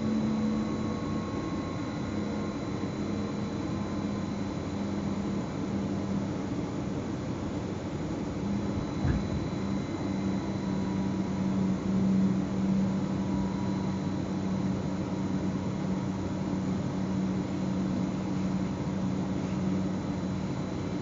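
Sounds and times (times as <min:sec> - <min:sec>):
electric train cab rushing hum: 0:08.5 - 0:09.8.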